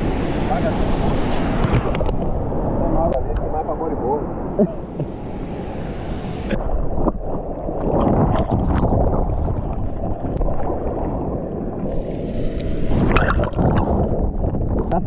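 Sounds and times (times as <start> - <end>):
water sloshing and splashing: 4.8 - 15.0.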